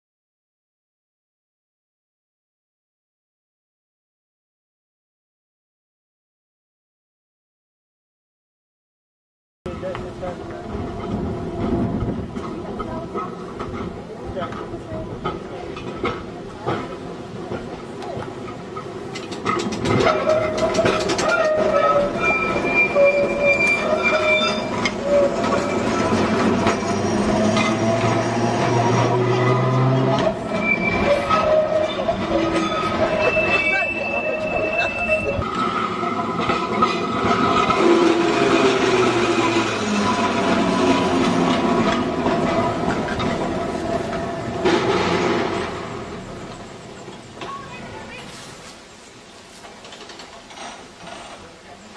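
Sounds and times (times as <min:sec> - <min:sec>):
rail clatter and clicks: 0:09.7 - 0:51.9
tram wheels squealing: 0:18.0 - 0:49.0.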